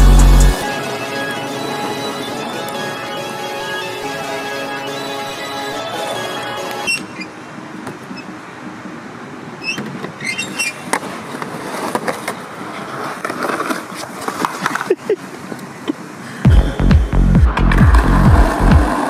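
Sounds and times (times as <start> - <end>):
skateboard clacking: 9.8 - 16.1, 17.5 - 19.0
skateboard wheels rumbling on concrete: 9.8 - 19.0.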